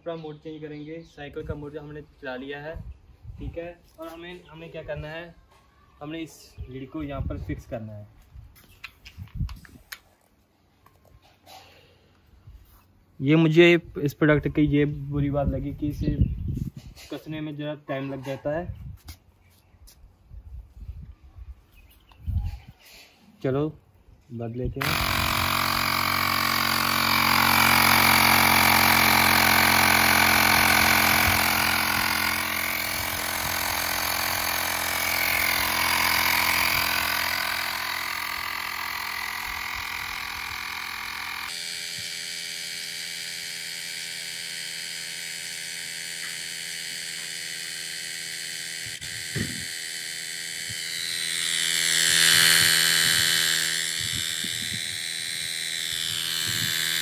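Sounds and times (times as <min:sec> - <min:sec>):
electric tyre pump running: 0:24.8 - 0:57.0.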